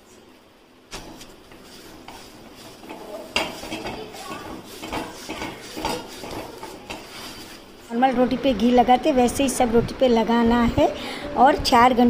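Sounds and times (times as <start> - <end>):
soft rustling and scraping: 0.9 - 8.0.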